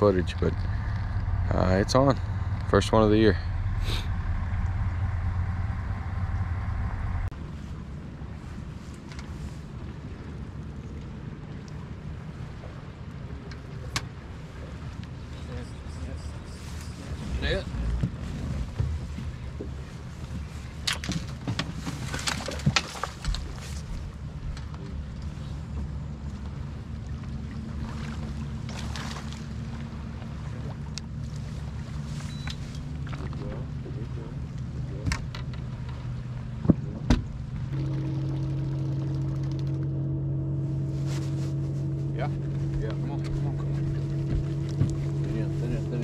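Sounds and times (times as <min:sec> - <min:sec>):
boat motor humming: 0:00.0 - 0:46.0
steady low rumble: 0:00.0 - 0:46.0.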